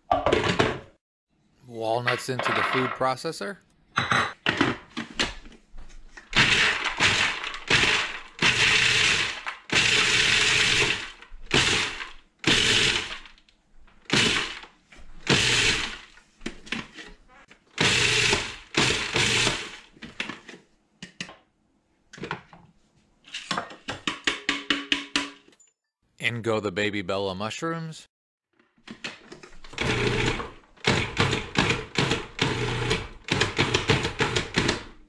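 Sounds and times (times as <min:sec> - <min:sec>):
food processor pulsing: 0:06.4 - 0:13.2, 0:14.1 - 0:14.6, 0:15.2 - 0:16.1, 0:17.8 - 0:19.9, 0:29.7 - 0:34.9.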